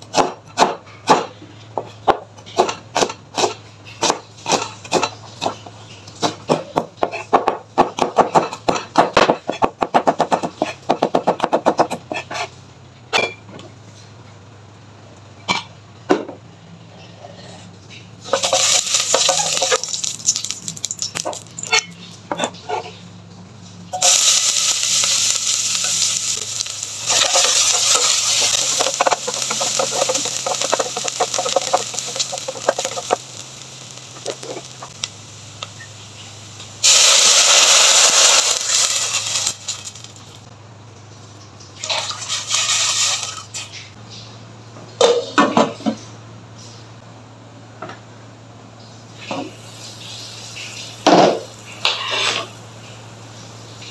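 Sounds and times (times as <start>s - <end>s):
onion sizzling in hot oil: 18.2s - 21.9s, 23.9s - 40.5s, 42.0s - 43.8s, 49.2s - 53.9s
water pouring into pot: 18.4s - 21.2s.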